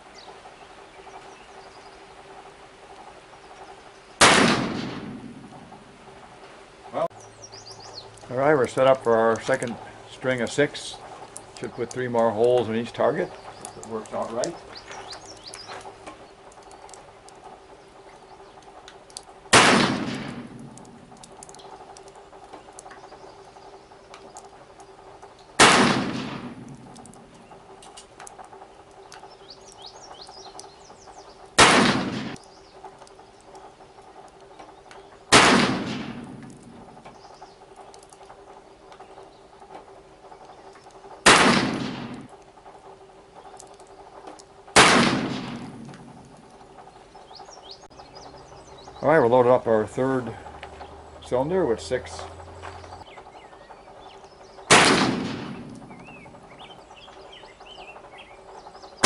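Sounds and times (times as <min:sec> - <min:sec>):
low hum: 0:00.0 - 0:59.0
revolver shots echoing: 0:04.2 - 0:05.6, 0:19.5 - 0:20.9, 0:25.6 - 0:27.2, 0:31.6 - 0:32.4, 0:35.3 - 0:36.8, 0:41.2 - 0:42.3, 0:44.8 - 0:46.1, 0:54.7 - 0:56.2.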